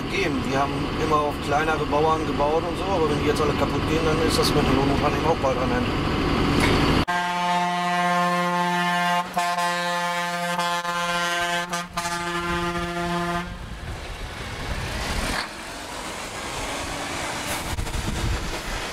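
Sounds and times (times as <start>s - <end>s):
tractor engines: 0.0s - 18.9s
traffic noise: 0.0s - 18.9s
vehicle horn long blast: 7.1s - 13.6s.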